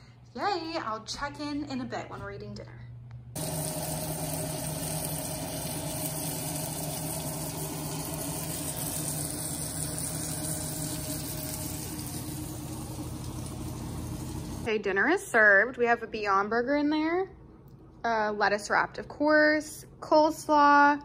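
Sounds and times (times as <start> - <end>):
steady low hum: 0.0 - 14.8
patty sizzling in oil: 3.4 - 14.7.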